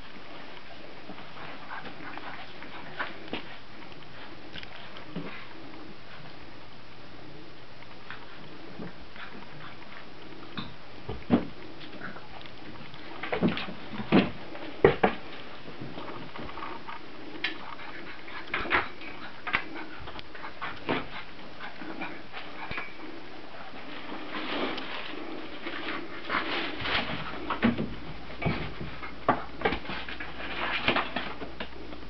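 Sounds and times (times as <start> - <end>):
puppies knocking and scuffling: 10.5 - 23.0, 23.8 - 31.7.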